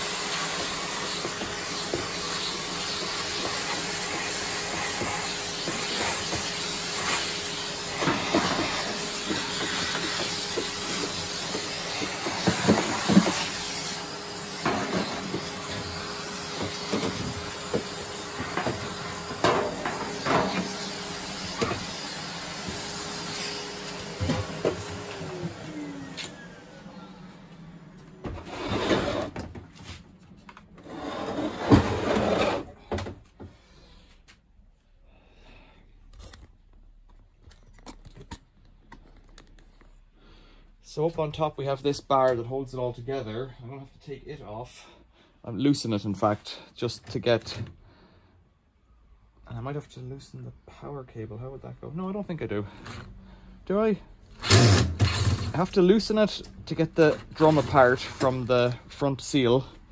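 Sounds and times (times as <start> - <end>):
vacuum motor winding down: 0.0 - 28.3
vacuum cleaner running: 0.0 - 30.0, 30.8 - 33.2.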